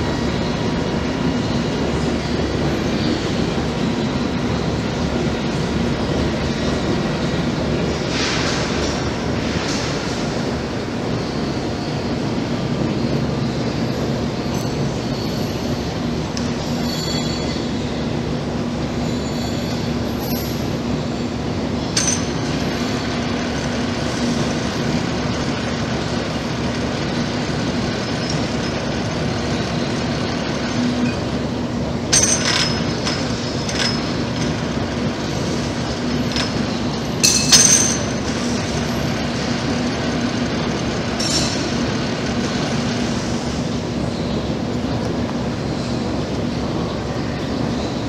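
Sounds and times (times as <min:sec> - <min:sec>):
milling machine rumble and hum: 0:00.0 - 0:48.0
metallic squeals and clinks: 0:14.4 - 0:16.0, 0:16.6 - 0:18.0, 0:19.0 - 0:20.7.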